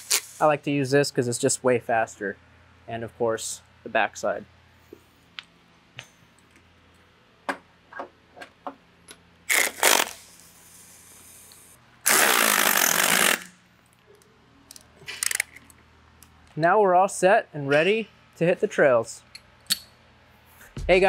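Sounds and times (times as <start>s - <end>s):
power wrench bursts: 12.0s - 13.6s.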